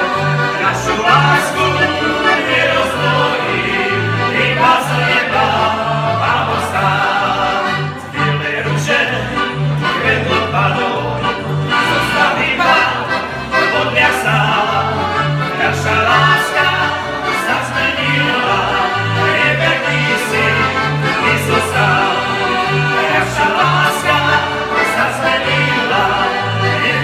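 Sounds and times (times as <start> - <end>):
accordions playing folk tune: 0.0 - 27.0
men singing: 0.0 - 27.0.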